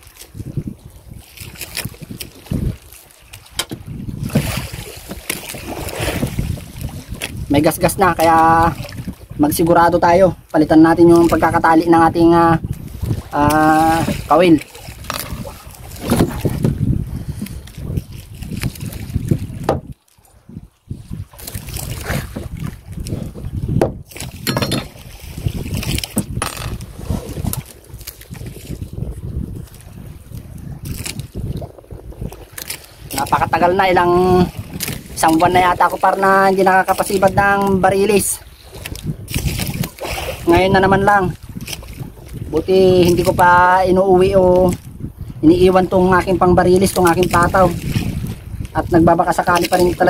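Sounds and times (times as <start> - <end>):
water lapping against hull: 0.0 - 50.0
wind buffeting microphone: 0.0 - 50.0
knocks and rustles: 23.8 - 25.1, 25.9 - 26.9.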